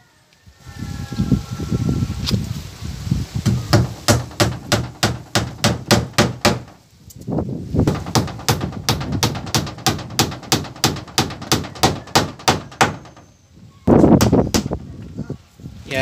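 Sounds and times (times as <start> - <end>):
hammer driving nails into wood: 3.5 - 6.8, 7.8 - 13.3, 14.2 - 14.8.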